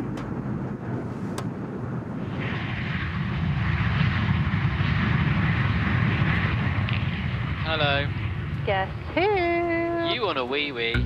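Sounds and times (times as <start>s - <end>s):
jet engine and air rush: 0.0s - 9.0s.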